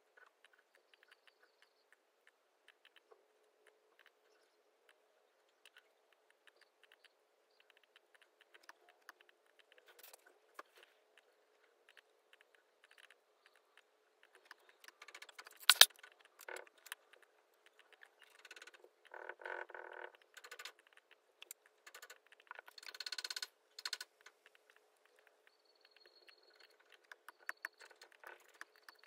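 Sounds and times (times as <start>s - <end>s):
faint steady hum: 0.0s - 29.0s
laptop keyboard clicking: 11.9s - 19.1s, 20.1s - 29.0s.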